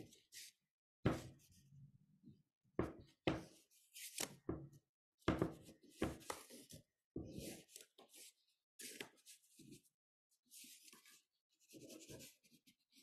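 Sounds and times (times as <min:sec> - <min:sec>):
knocks on a tabletop: 0:04.5 - 0:06.3.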